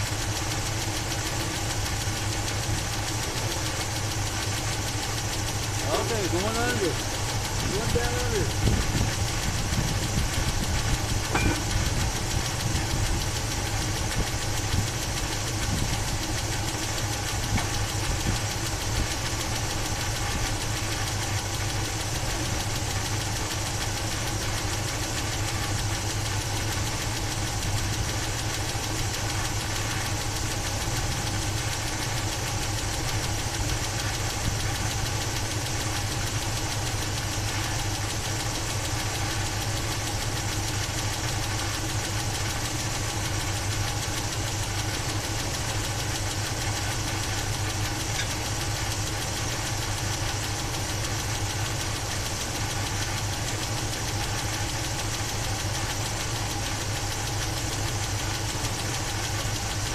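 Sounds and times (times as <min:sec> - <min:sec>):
engine idling: 0:00.0 - 0:59.9.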